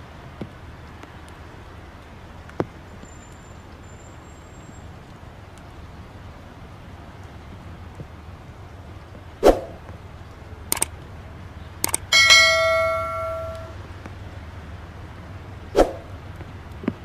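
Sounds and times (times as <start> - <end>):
clicks: 10.7 - 10.9, 11.8 - 13.8
bell ding: 12.1 - 13.8
swoosh: 15.7 - 16.1.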